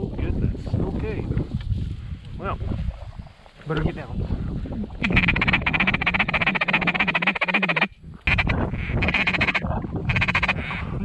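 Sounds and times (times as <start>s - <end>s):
drawn-out duck call quacks: 5.0s - 10.8s
duck call chatter: 5.0s - 10.8s.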